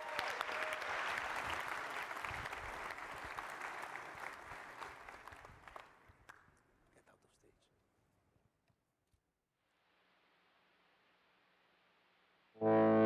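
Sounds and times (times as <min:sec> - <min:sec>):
large audience applauding: 0:00.0 - 0:06.5.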